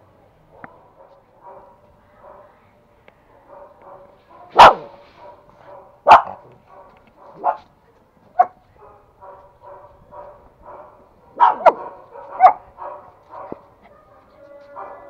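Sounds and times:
small dog barking: 0:03.4 - 0:07.7, 0:08.4 - 0:15.0
another dog barking quickly: 0:04.5 - 0:06.4.

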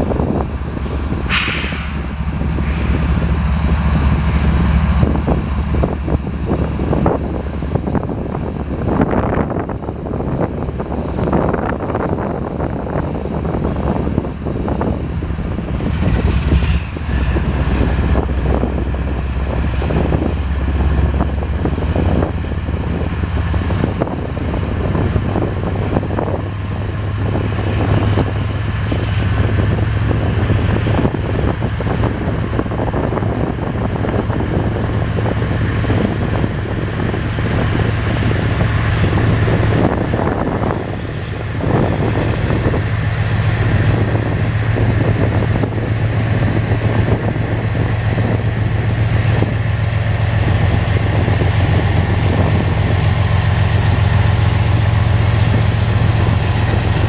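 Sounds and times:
diesel locomotive engines rumbling: 0:00.0 - 0:57.0
brief hiss: 0:01.3 - 0:02.0.

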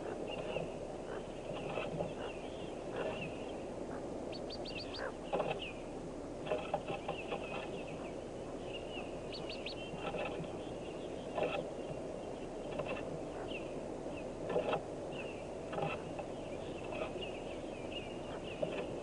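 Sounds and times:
ducklings peeping: 0:00.0 - 0:19.0
scratches and knocks: 0:09.9 - 0:10.6.

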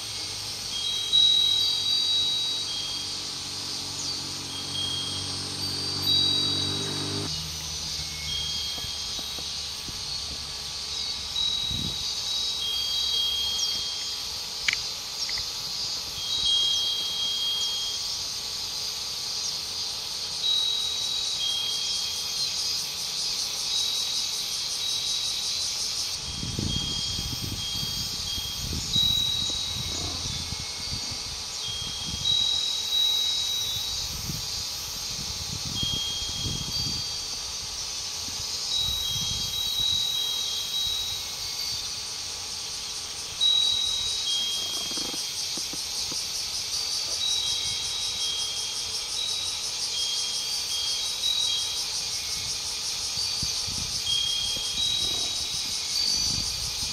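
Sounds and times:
wind chime ringing: 0:00.0 - 0:14.9, 0:15.6 - 0:18.7, 0:20.3 - 0:45.6, 0:46.2 - 0:56.9
chorus of insects: 0:00.0 - 0:56.9
wind rumbling on microphone: 0:11.3 - 0:12.1, 0:26.2 - 0:32.4, 0:33.7 - 0:40.0, 0:52.3 - 0:56.9.

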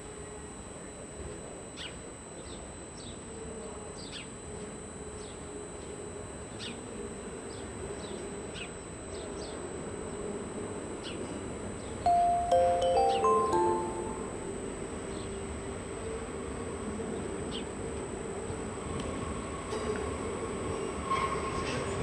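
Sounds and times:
chime-like notes: 0:12.1 - 0:14.5
high downward chirps: 0:12.1 - 0:14.5.

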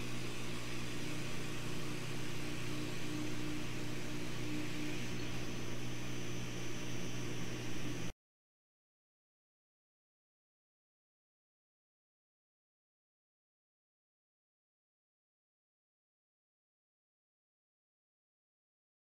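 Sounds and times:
air pump humming and hissing: 0:00.0 - 0:08.1
laser engraver working: 0:00.0 - 0:08.1.

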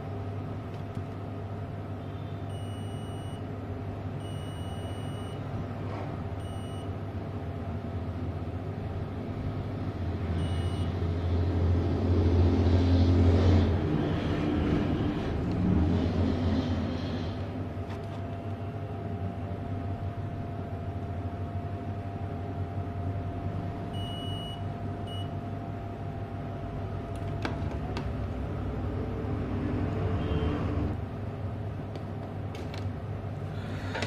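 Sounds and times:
short high-pitched beeps: 0:10.4 - 0:10.9.

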